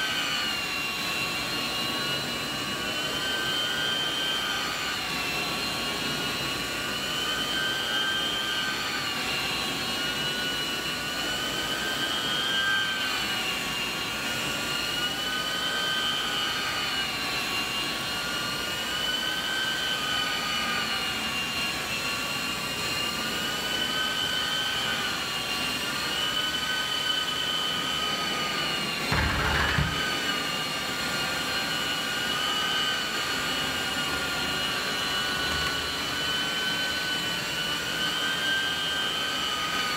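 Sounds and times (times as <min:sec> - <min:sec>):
loud vacuum suction whine: 0:00.0 - 0:39.9
low thump: 0:29.1 - 0:30.0.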